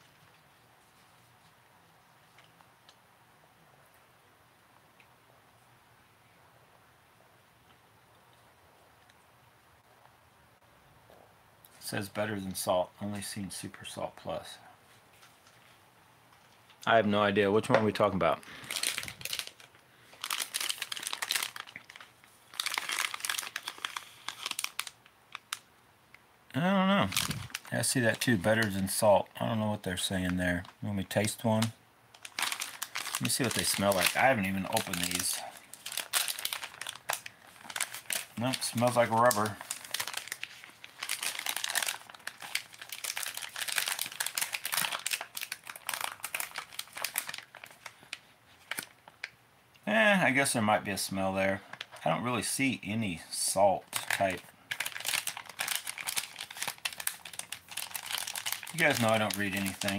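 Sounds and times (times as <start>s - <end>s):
plastic bags crinkling: 17.7s - 25.7s, 27.0s - 49.3s, 51.5s - 52.1s, 53.9s - 59.9s.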